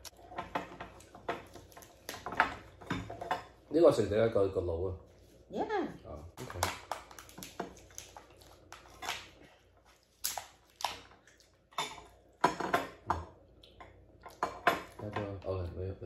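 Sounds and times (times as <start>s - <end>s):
lobster shells cracking: 0.0s - 2.8s, 6.4s - 13.0s.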